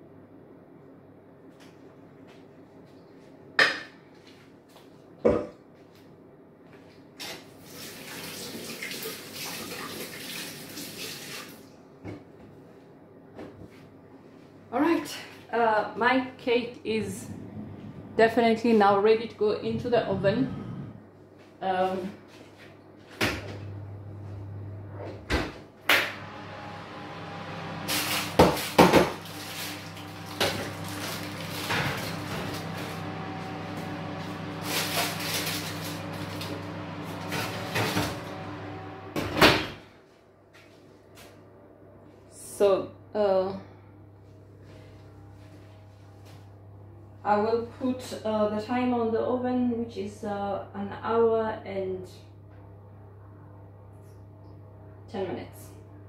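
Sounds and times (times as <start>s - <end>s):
kitchen tap running: 7.3s - 11.7s, 27.7s - 38.9s
low steady hum: 13.4s - 40.4s, 41.4s - 56.0s.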